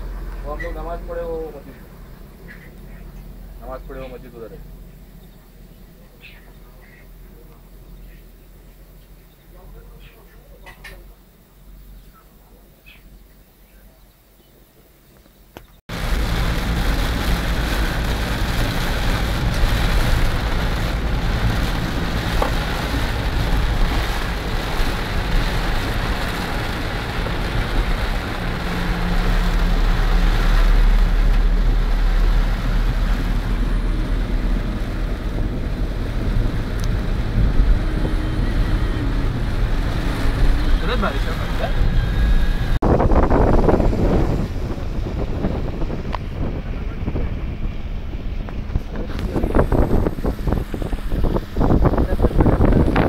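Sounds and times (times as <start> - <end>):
heavy rain: 15.9 - 53.0
wind buffeting microphone: 15.9 - 53.0.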